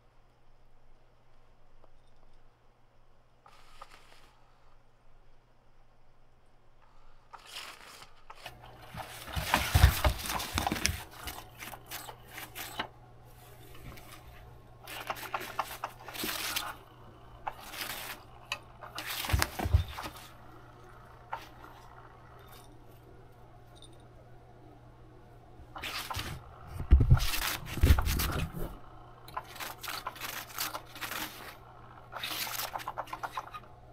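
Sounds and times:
fabric rustling and scraping: 0:07.4 - 0:20.5, 0:25.8 - 0:33.5.

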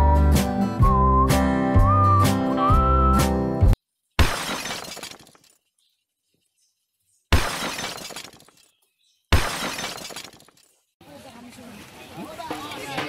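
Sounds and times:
glass breaking crash: 0:04.2 - 0:05.6, 0:07.3 - 0:08.7, 0:09.3 - 0:10.8.

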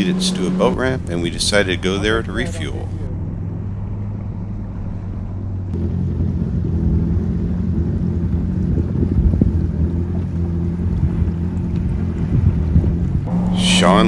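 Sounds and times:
jet ski engines running: 0:00.0 - 0:03.1, 0:04.0 - 0:14.0
wind on microphone: 0:08.5 - 0:10.0, 0:10.8 - 0:14.0.

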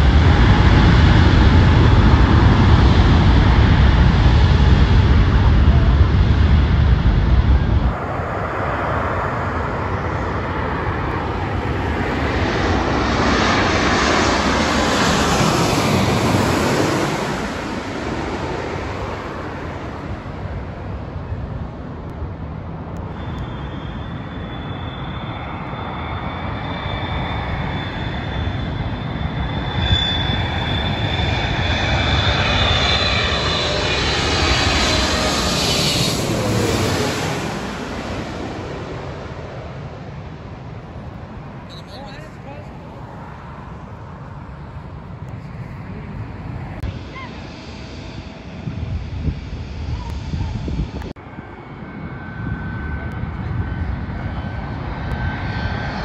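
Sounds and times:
jet airliner passing overhead: 0:00.0 - 0:56.0.

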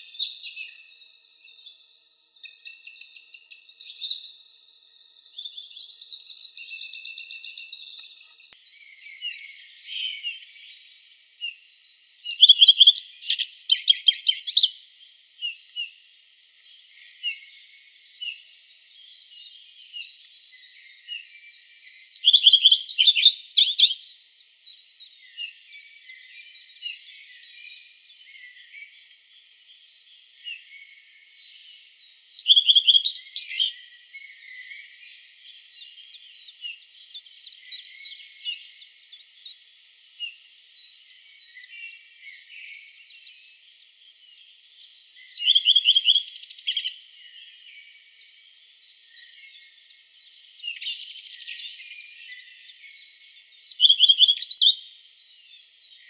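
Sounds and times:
other birds singing and calling: 0:00.0 - 0:56.0
songbird singing rapid phrase: 0:12.2 - 0:14.8, 0:22.0 - 0:24.0, 0:32.3 - 0:33.8, 0:45.2 - 0:47.0, 0:53.6 - 0:54.9.

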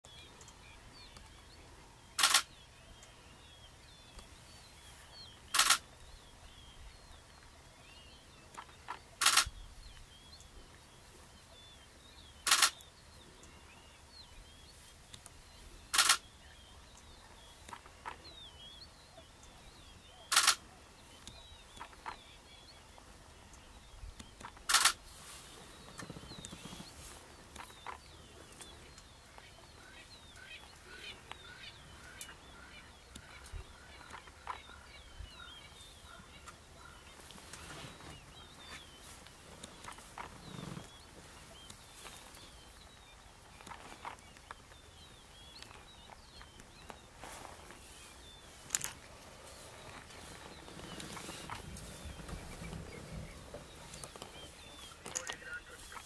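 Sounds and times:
faint high chirping: 0:00.0 - 0:56.0
camera shutter bursts: 0:02.2 - 0:02.6, 0:05.5 - 0:05.9, 0:09.2 - 0:09.5, 0:12.4 - 0:12.8, 0:15.9 - 0:16.2, 0:20.3 - 0:20.6, 0:24.4 - 0:25.0.

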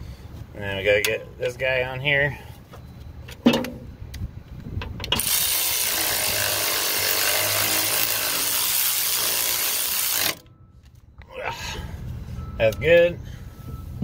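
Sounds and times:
cordless electric ratchet running: 0:05.2 - 0:10.4.

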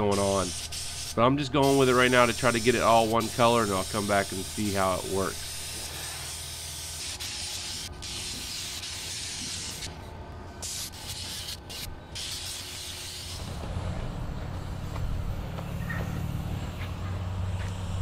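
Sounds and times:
air spray gun hissing: 0:00.0 - 0:10.0, 0:10.6 - 0:13.8.

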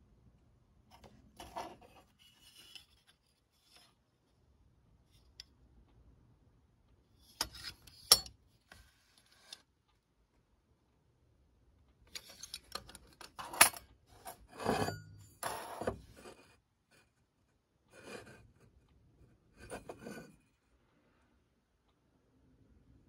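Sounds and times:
metal scraping against metal: 0:13.4 - 0:16.4.

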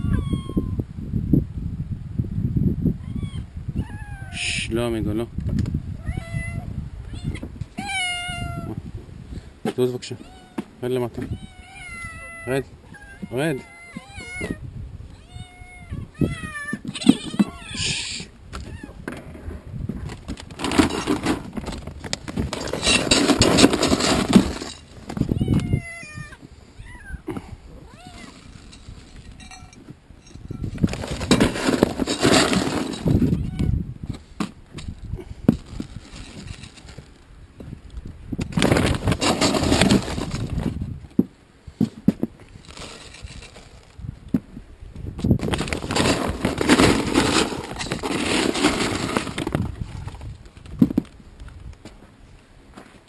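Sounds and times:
kibble scraping and rattling: 0:16.2 - 0:18.0, 0:18.6 - 0:26.3, 0:28.0 - 0:37.8, 0:38.4 - 0:44.5, 0:45.2 - 0:51.8
plastic sack of cat food rustling: 0:42.6 - 0:43.9.

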